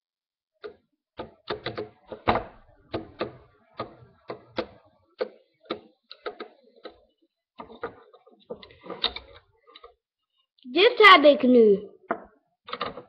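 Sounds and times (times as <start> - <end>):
plastic clicks and taps: 0.6 - 7.0.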